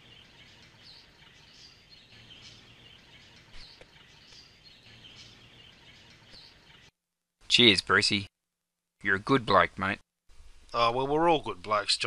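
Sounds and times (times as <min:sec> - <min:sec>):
birds chirping: 0:00.0 - 0:06.9
low steady background noise: 0:09.0 - 0:12.0.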